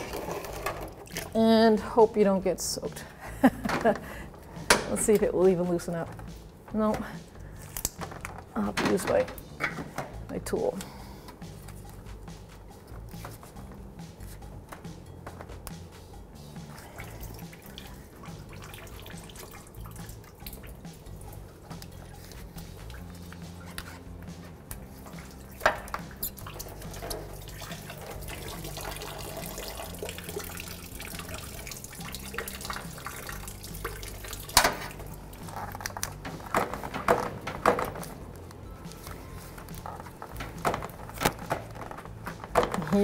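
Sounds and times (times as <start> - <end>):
coolant trickling into bucket: 0.0 - 1.4, 16.7 - 23.2, 25.0 - 38.4.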